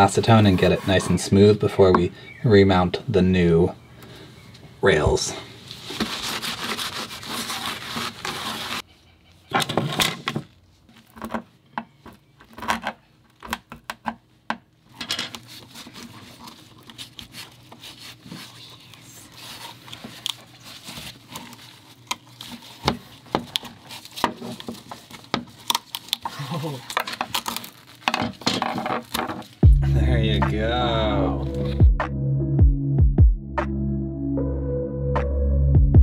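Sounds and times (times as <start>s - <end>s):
rag rubbing a surface: 0.0s - 1.6s.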